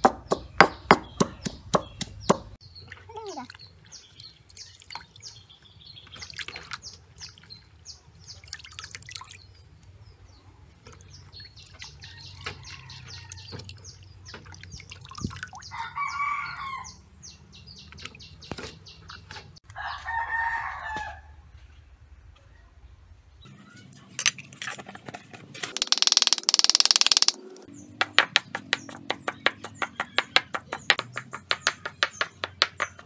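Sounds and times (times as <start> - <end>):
water splashing in a basin: 6.0 - 9.6, 10.8 - 15.7
rooster crowing: 15.7 - 17.0, 19.8 - 21.4.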